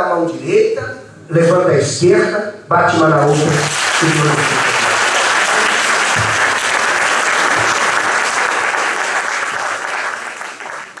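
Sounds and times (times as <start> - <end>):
congregation applauding: 3.2 - 11.0.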